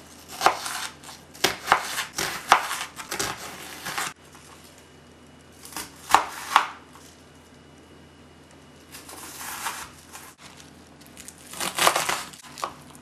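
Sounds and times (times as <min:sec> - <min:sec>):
knife slicing onion on board: 0:00.0 - 0:04.2, 0:05.6 - 0:06.9, 0:08.9 - 0:10.4
sharp knife chops: 0:00.3 - 0:04.2, 0:05.7 - 0:06.8.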